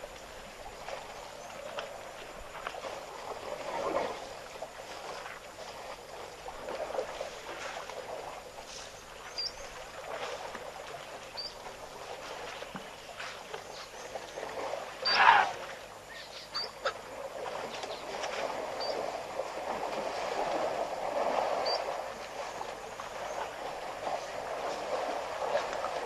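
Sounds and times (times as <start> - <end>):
elephants sloshing water: 0.0 - 26.0
high bird chirps: 16.2 - 16.8.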